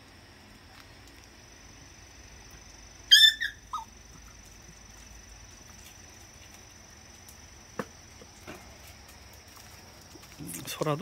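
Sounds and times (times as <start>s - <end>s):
puppy squealing: 3.1s - 3.9s
puppy yipping: 3.1s - 3.9s.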